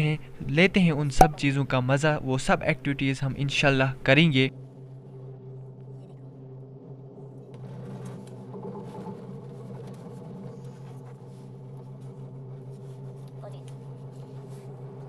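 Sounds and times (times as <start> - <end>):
cable car cabin hum: 0.0 - 15.0
faint clicks and rattles: 7.4 - 15.0.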